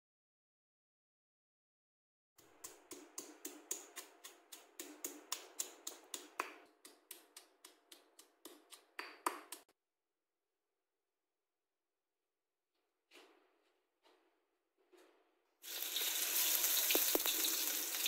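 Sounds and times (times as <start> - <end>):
stone pestle pounding in mortar: 2.4 - 9.7.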